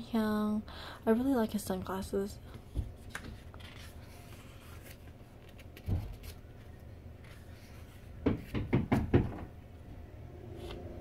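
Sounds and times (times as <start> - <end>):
hammer knocks: 8.2 - 9.5.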